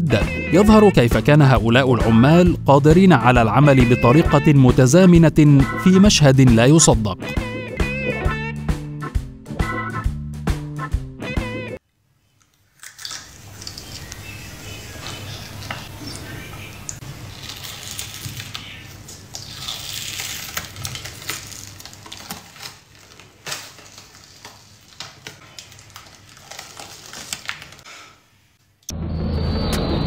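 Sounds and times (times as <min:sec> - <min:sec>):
film peeling off skin crackling: 0:12.4 - 0:27.9.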